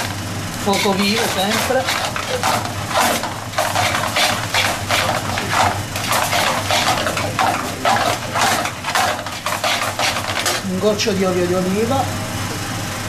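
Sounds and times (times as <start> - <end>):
pasta sizzling: 0.0 - 11.0
metal tongs scraping a pan: 0.7 - 10.7.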